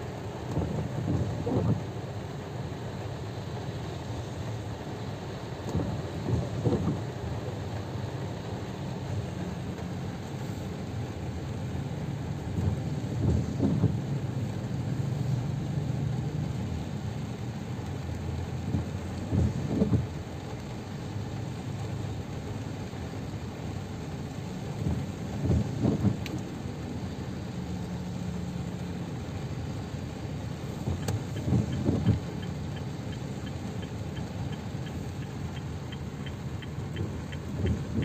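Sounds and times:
rain on car roof: 0.0 - 38.0
windscreen wipers sweeping: 0.0 - 38.0.

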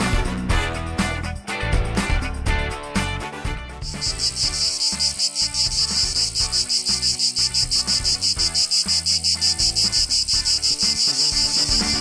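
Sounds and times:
cicadas buzzing: 3.8 - 12.0.

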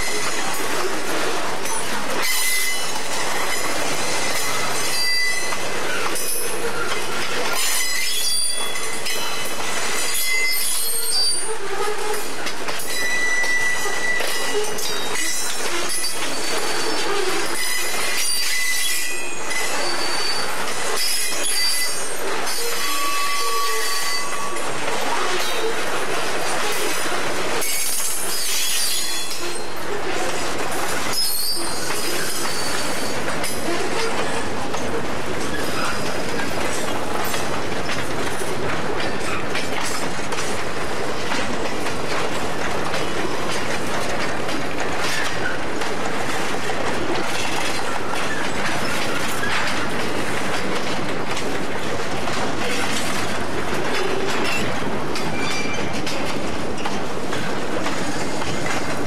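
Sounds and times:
train wheel squeals: 0.0 - 44.3, 46.2 - 59.0
freight train rumbling past: 0.0 - 59.0
wheels clicking over rail joints: 23.4 - 59.0.

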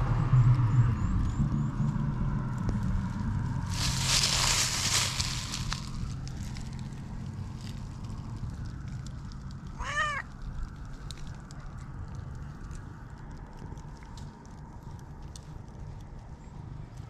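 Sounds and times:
faint rustling clicks: 3.7 - 17.0
cat meowing: 9.8 - 10.3.

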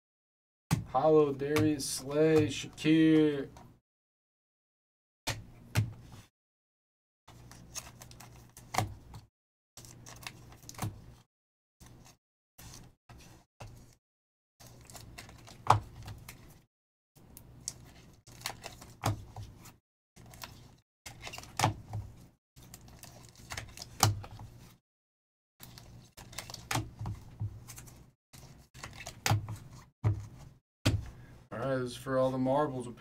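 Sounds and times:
cards and plastic holders rustling: 1.3 - 3.7, 7.3 - 11.2, 11.8 - 14.0, 14.6 - 16.6, 17.3 - 24.8, 25.6 - 31.2.

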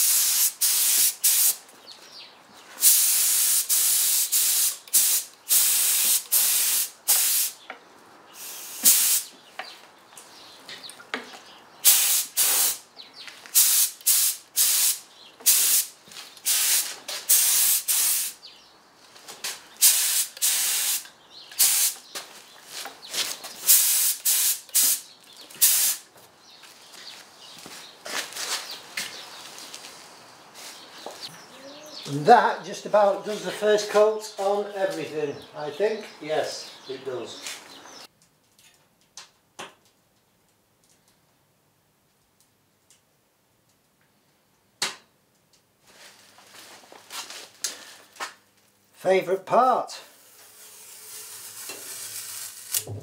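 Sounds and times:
paint spray gun hissing: 0.0 - 1.6, 2.8 - 7.6, 8.4 - 9.3, 11.8 - 12.8, 13.5 - 18.4, 19.8 - 22.0, 23.7 - 25.0, 25.6 - 26.0, 50.2 - 53.0.

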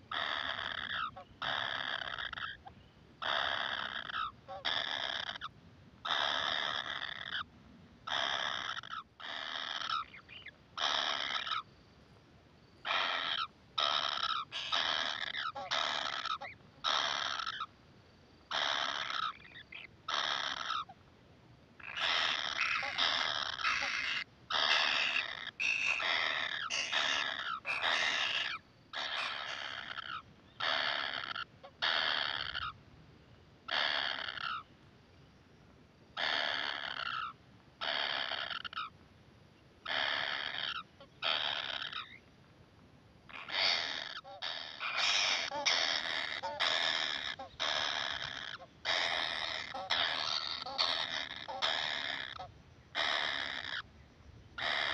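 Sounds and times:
kingfisher nestlings begging calls: 0.1 - 2.6, 12.9 - 17.6, 21.9 - 32.7, 39.9 - 42.0, 43.3 - 52.4, 53.0 - 53.8.

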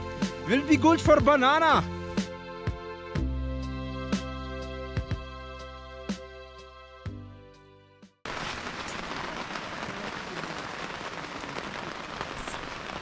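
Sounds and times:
background music: 0.0 - 8.2
steady rain falling: 8.3 - 13.0.

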